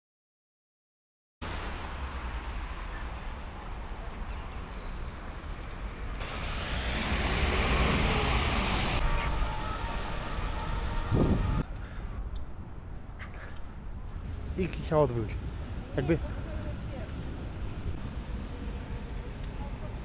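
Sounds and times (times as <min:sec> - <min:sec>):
bus passing: 0:01.4 - 0:11.6, 0:14.1 - 0:20.0
traffic on wet road: 0:01.4 - 0:11.6, 0:14.4 - 0:20.0
tyres hissing on wet asphalt: 0:06.1 - 0:09.0.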